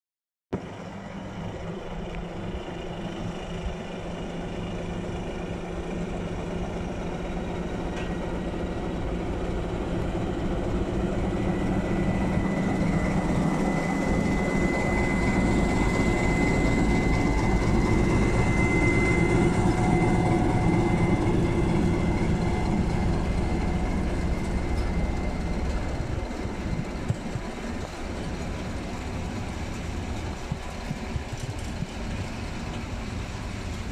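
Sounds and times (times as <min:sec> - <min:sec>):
diesel locomotive running under load: 0:00.5 - 0:33.9
steady high whine: 0:00.6 - 0:33.9
freight wagons rolling by: 0:09.0 - 0:33.9.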